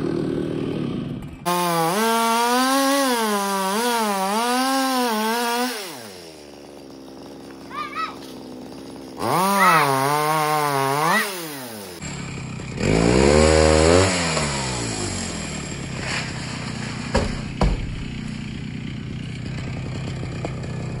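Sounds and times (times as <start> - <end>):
chainsaw cutting wood: 0.0 - 21.0
sharp knocks: 17.1 - 18.2.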